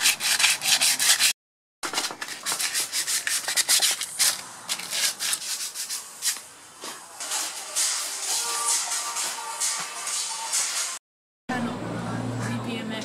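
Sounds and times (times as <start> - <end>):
hand sanding metal: 0.0 - 1.4, 2.2 - 6.4, 7.2 - 11.0.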